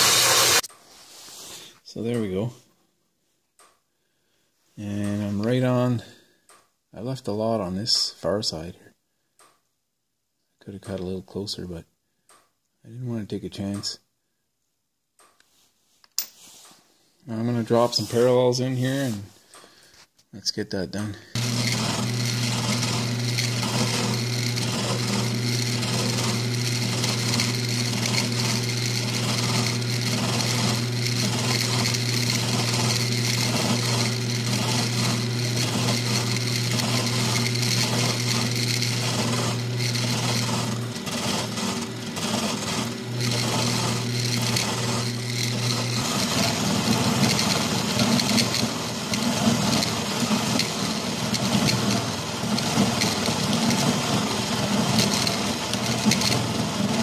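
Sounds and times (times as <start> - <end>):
milling cutter cutting metal: 0.0 - 0.7, 21.3 - 57.0
milling machine humming: 0.0 - 0.7, 21.3 - 57.0.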